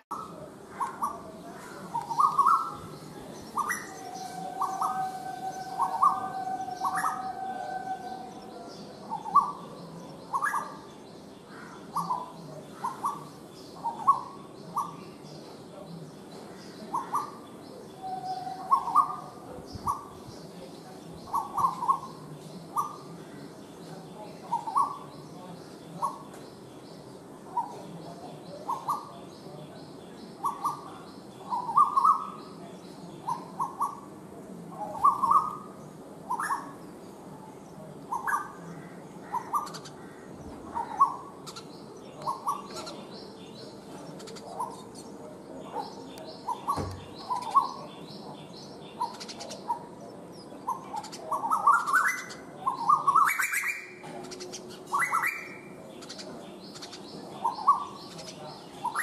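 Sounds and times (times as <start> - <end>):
small birds chirping: 0.0 - 59.0
koel calling: 3.5 - 8.6.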